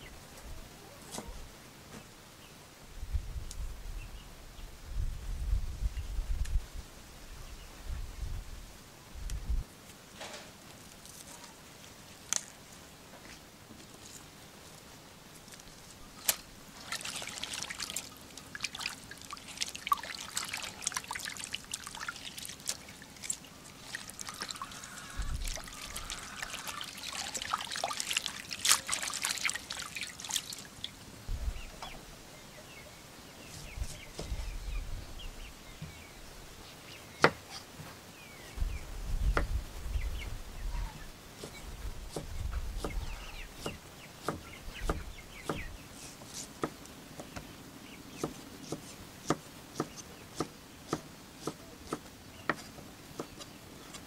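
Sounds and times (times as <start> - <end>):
water splashing and dripping: 16.2 - 31.1.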